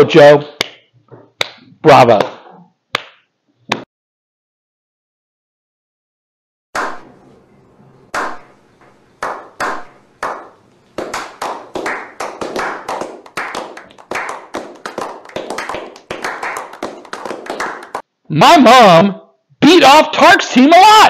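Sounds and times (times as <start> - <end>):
people clapping: 8.2 - 8.4, 9.2 - 18.0.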